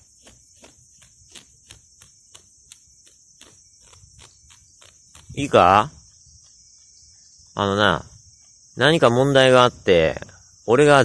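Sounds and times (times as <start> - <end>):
crickets and insects chirring: 0.0 - 11.0.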